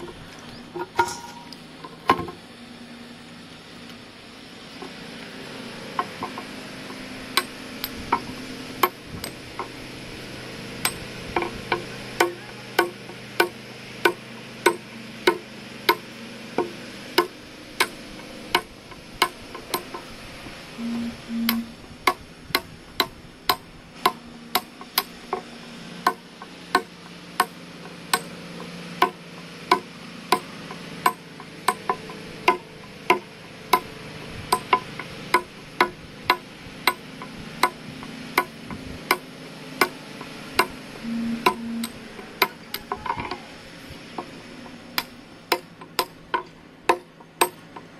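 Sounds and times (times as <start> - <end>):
short tones: 20.8 - 21.8, 41.0 - 43.5.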